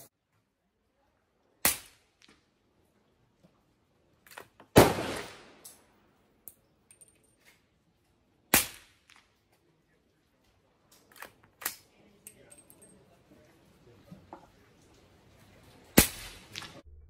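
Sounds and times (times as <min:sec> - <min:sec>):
suppressed rifle gunshots: 0:04.7 - 0:05.6.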